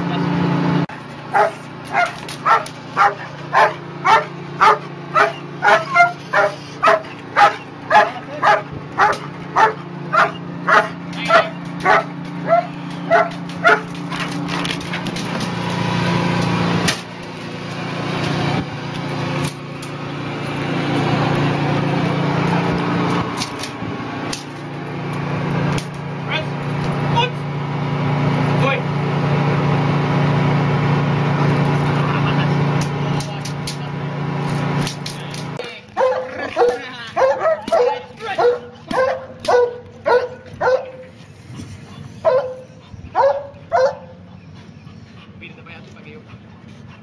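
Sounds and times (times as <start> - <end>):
low engine hum: 0.0 - 47.0
dog barking: 1.3 - 14.0, 36.0 - 41.1, 42.2 - 44.2.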